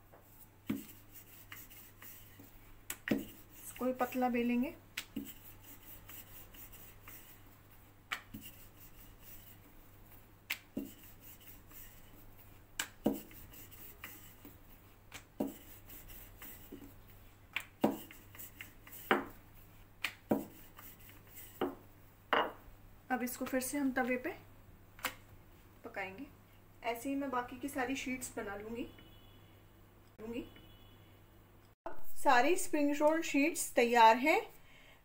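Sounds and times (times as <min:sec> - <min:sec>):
rolling pin rubbing dough: 0:00.2 - 0:19.4, 0:20.1 - 0:21.8.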